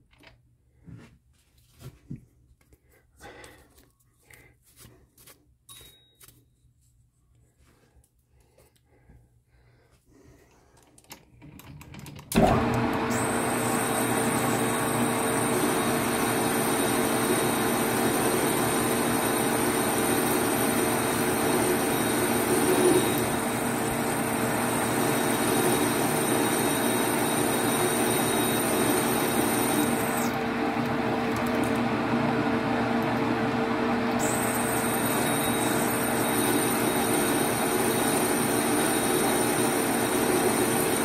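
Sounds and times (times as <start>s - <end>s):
metal lathe humming and whining: 12.4s - 41.0s.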